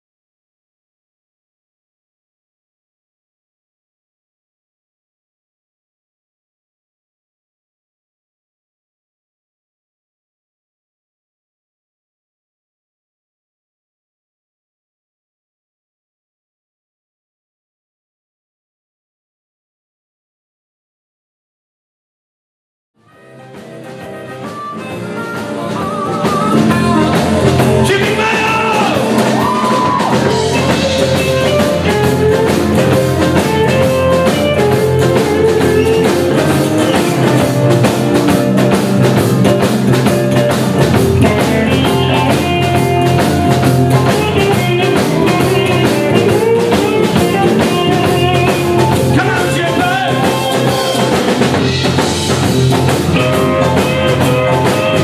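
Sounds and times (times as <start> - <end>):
electric lead guitar: 23.1 - 55.0
blues-rock band playing: 23.2 - 55.0
steady drum beat: 23.6 - 55.0.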